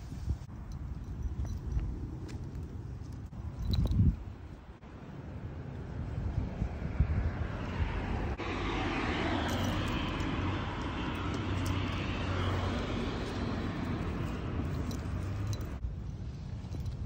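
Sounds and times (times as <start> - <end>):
passing vehicle engine rush: 6.1 - 15.8.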